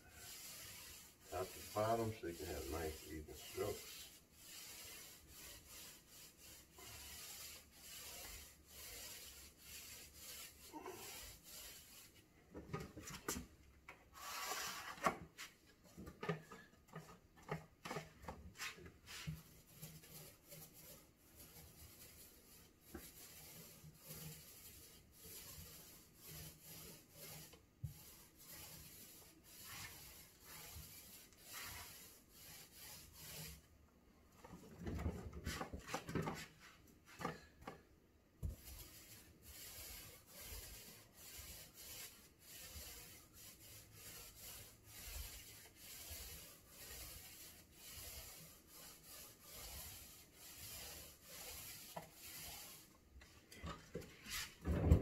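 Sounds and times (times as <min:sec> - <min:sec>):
paintbrush stroking on wood: 0:00.0 - 0:12.3, 0:18.5 - 0:33.6, 0:35.5 - 0:37.2, 0:38.5 - 0:53.4, 0:54.1 - 0:54.6
knocking and handling at paint tray: 0:12.5 - 0:14.1, 0:14.8 - 0:19.4, 0:34.4 - 0:38.8, 0:53.2 - 0:55.0.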